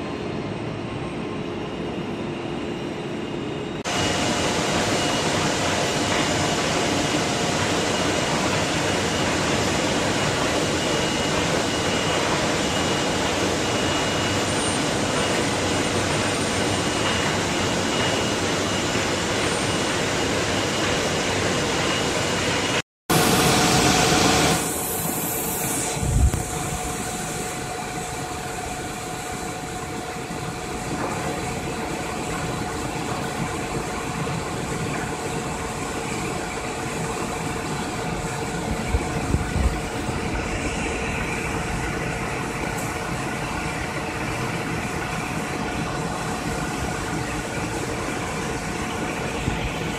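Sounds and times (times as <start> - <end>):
faint machine whine: 0.0 - 49.9.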